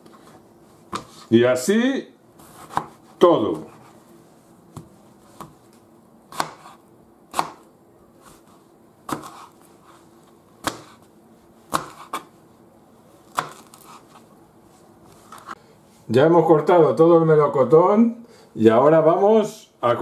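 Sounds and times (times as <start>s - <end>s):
knife chopping on plastic board: 2.4s - 3.8s, 4.8s - 5.7s, 6.3s - 8.4s, 9.1s - 9.6s, 10.6s - 11.1s, 11.7s - 12.3s, 13.3s - 14.1s.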